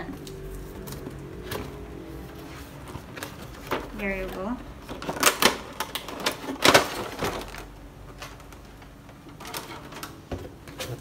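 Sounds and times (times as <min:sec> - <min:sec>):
cardboard box rustling scrape: 0:00.5 - 0:05.3.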